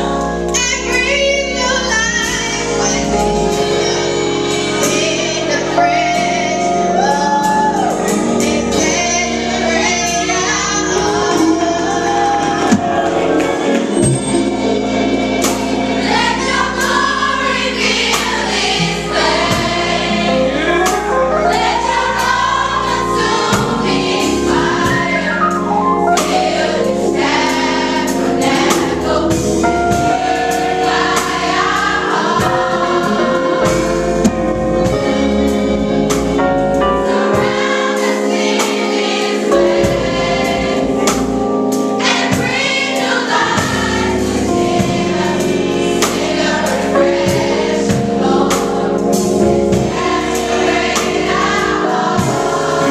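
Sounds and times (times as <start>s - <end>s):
gospel choir singing: 0.0s - 52.9s
keyboard: 0.0s - 52.9s
organ: 0.0s - 52.9s
drum kit with cymbals: 11.3s - 20.2s.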